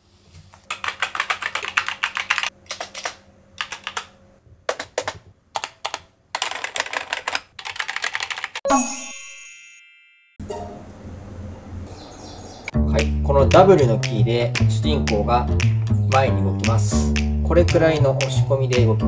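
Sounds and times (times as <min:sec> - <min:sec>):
fast keyboard typing clicks: 0:00.7 - 0:04.1, 0:04.7 - 0:08.6.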